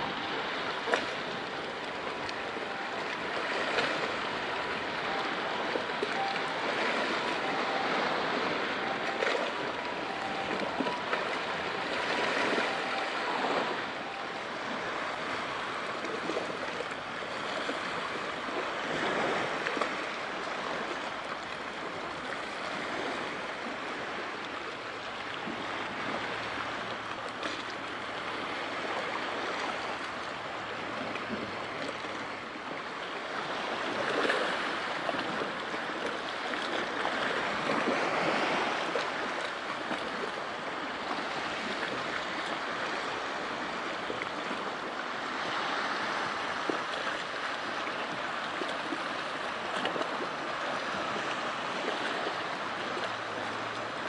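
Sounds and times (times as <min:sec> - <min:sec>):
sea waves washing: 0:00.0 - 0:54.0.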